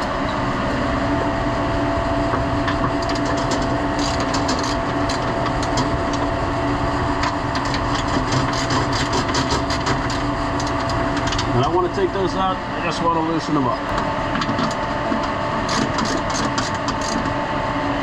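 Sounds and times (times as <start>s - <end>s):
machinery hum: 0.0s - 18.0s.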